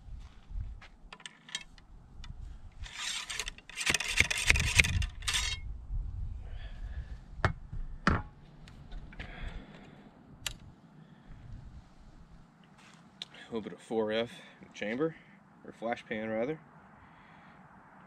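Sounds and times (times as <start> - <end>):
ramrod rasping down rifle bore: 2.8 - 5.6.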